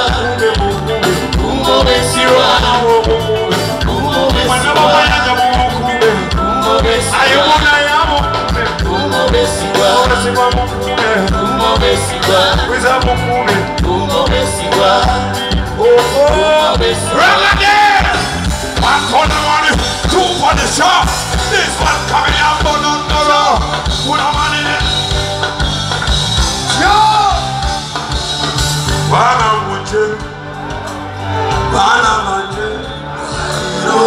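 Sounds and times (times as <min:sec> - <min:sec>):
person singing: 0:00.0 - 0:25.0
live band playing: 0:00.0 - 0:34.0.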